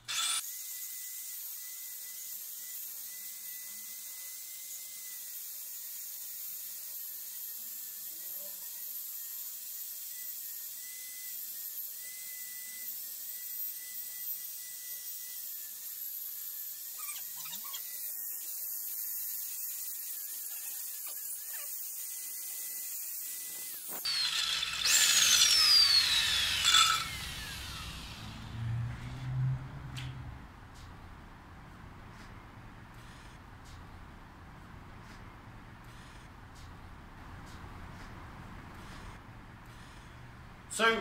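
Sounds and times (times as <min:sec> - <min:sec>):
core drill whining: 0:00.0 - 0:29.3.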